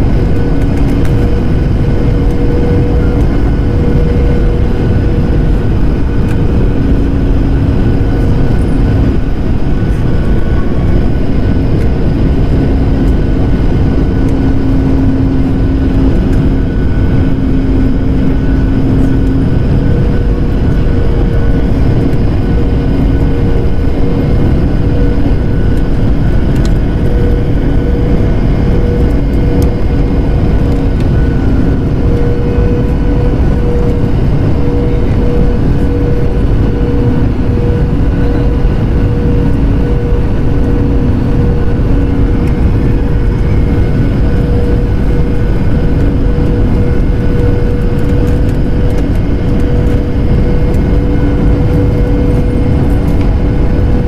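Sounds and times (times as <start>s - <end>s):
constant droning hum: 0.0s - 54.0s
jet engines and airflow rushing: 0.0s - 54.0s.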